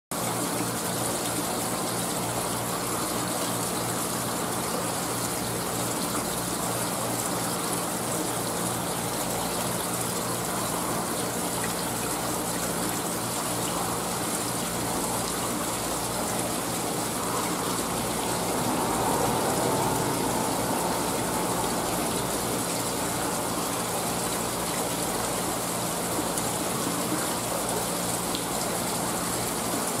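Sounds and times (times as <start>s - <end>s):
water rushing through tank plumbing: 0.2s - 30.0s
low pump hum: 9.0s - 29.9s.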